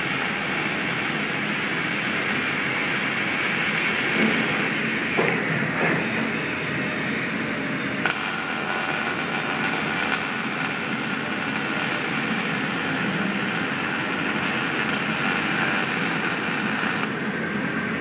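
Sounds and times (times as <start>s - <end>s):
welding arc crackling hiss: 0.0s - 4.7s, 8.0s - 17.2s.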